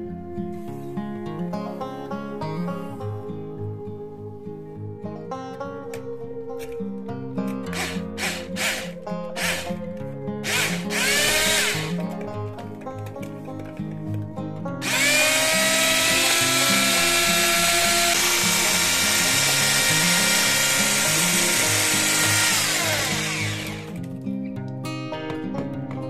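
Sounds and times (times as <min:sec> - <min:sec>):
background music: 0:00.0 - 0:26.0
electric hand mixer whirring: 0:07.7 - 0:09.8, 0:10.4 - 0:12.0, 0:14.8 - 0:24.0.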